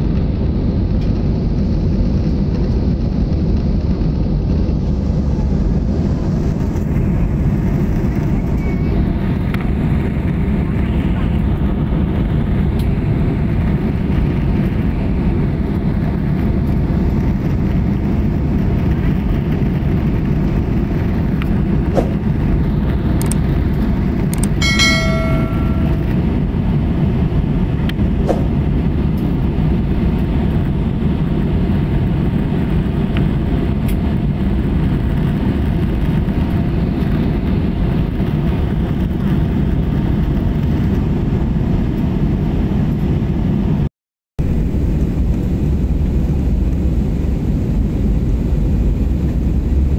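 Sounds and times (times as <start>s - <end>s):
airliner cabin rumble: 0.0s - 49.9s
short ringing chime: 24.6s - 26.2s.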